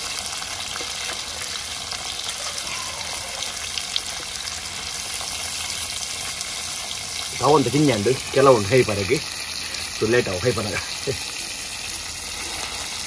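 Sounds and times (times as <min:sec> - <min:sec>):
prawns sizzling in hot oil: 0:00.0 - 0:13.0.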